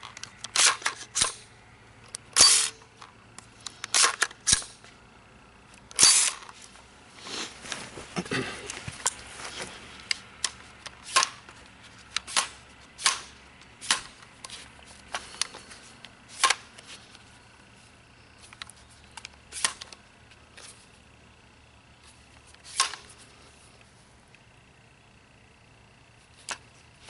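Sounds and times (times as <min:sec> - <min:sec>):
rifle parts clicking: 0:00.0 - 0:04.9, 0:10.0 - 0:17.1.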